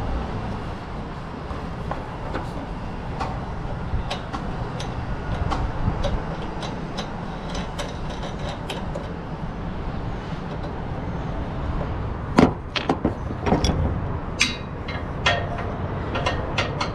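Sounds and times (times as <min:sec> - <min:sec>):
steady low rumble: 0:08.6 - 0:16.9.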